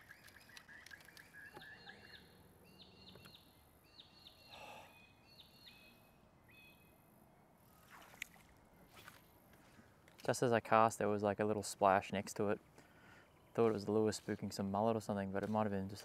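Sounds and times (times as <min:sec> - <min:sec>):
bird trill: 0:00.0 - 0:07.0
faint bird chirps: 0:00.0 - 0:07.1.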